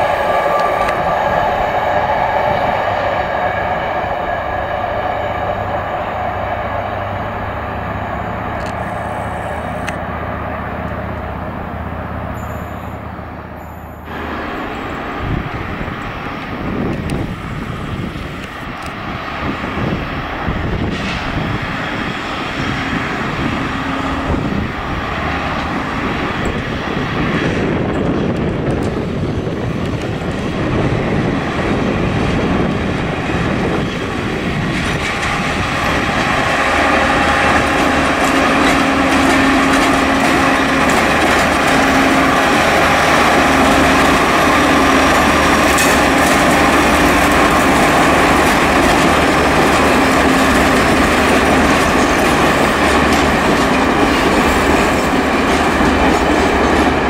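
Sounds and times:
train engine running: 0:00.0 - 0:57.0
train wheel tones: 0:00.0 - 0:57.0
wheels clicking over track: 0:32.6 - 0:57.0.

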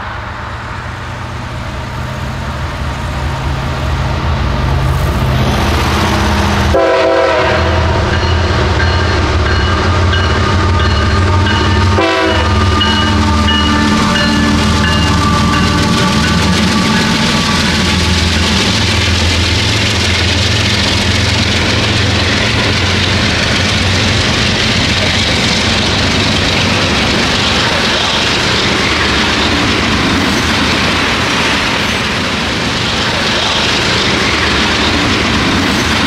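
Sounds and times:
diesel locomotive engines droning: 0:00.0 - 0:36.0
train wheels rumbling on rails: 0:00.0 - 0:36.0.

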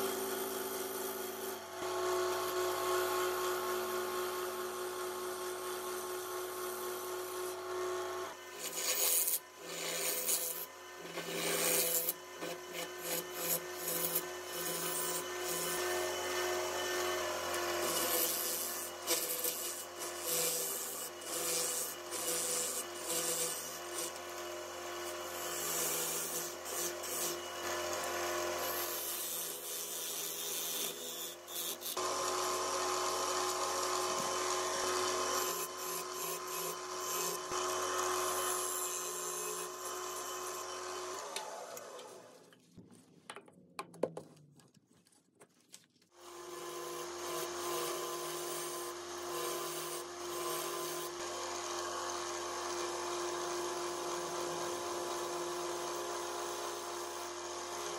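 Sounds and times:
wood lathe motor humming: 0:06.5 - 0:42.4, 0:46.2 - 0:57.9
gouge cutting spinning wood: 0:07.7 - 0:42.4, 0:46.2 - 0:57.9.

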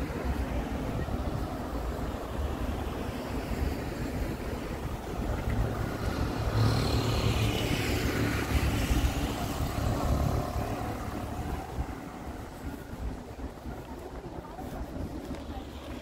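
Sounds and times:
motor vehicle passing: 0:05.5 - 0:12.6.

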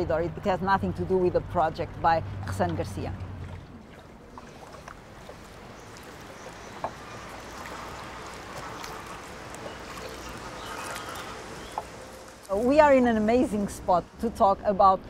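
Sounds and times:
water washing and oar strokes: 0:00.0 - 0:14.3
light knocks on boat: 0:06.7 - 0:07.2.

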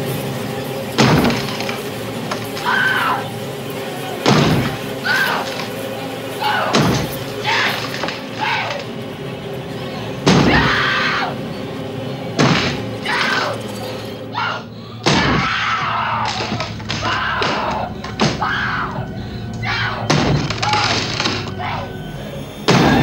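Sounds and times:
axe chopping through wooden door: 0:12.4 - 0:12.8
woman screaming: 0:14.3 - 0:20.9.

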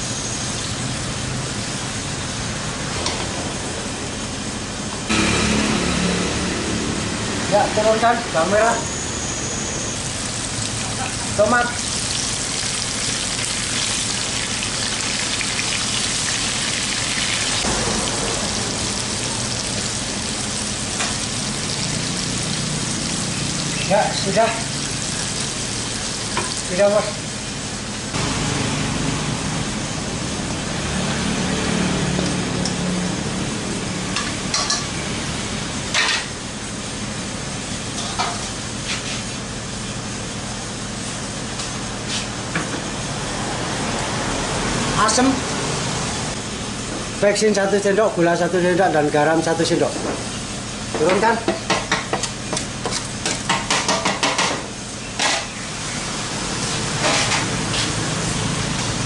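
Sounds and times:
vegetables sizzling in hot oil: 0:00.0 - 0:03.0, 0:09.6 - 0:42.1.

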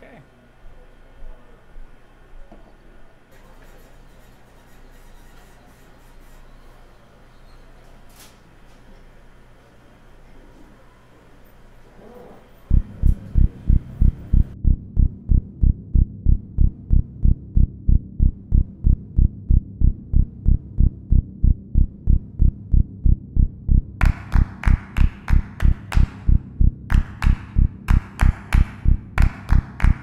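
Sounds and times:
pulsing low bass beat: 0:12.7 - 0:30.0.

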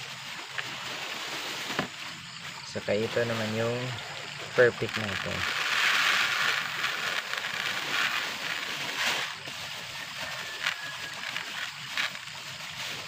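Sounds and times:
plastic bag crinkling: 0:04.5 - 0:13.0
granules pouring into water: 0:04.8 - 0:09.3.

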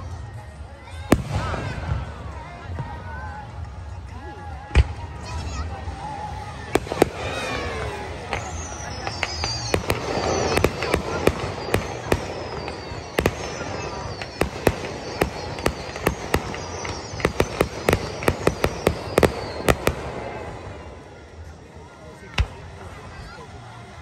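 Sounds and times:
firework shells bursting: 0:06.8 - 0:21.1.

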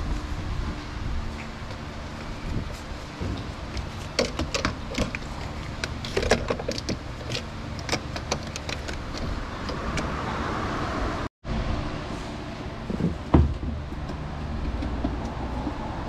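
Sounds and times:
steady low hum: 0:00.0 - 0:16.0
tools clicking and knocking on car door: 0:04.1 - 0:10.1.

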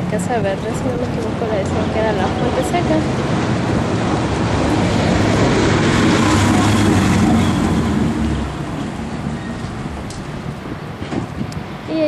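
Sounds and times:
truck driving past: 0:01.8 - 0:10.8.

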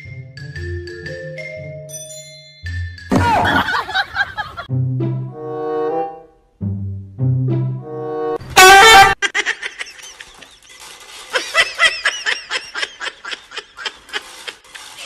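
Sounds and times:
person laughing: 0:03.1 - 0:04.7, 0:09.2 - 0:15.0.

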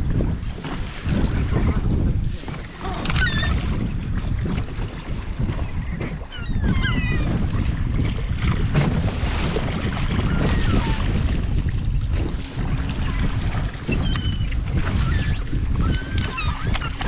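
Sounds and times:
boat motor rumble: 0:00.0 - 0:17.0
wind on microphone: 0:00.0 - 0:17.0
gulls calling: 0:02.8 - 0:03.6, 0:06.0 - 0:07.4, 0:10.0 - 0:11.2, 0:13.0 - 0:17.0.

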